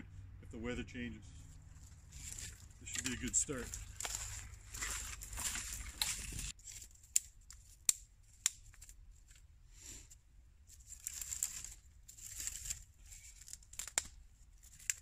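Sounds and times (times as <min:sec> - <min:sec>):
wood shavings rustling: 0:01.7 - 0:06.9, 0:10.7 - 0:15.0.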